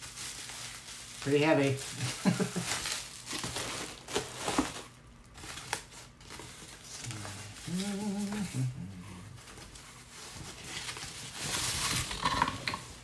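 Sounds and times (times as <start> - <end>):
plastic bag crinkling: 0.0 - 13.0
person humming: 6.9 - 9.4.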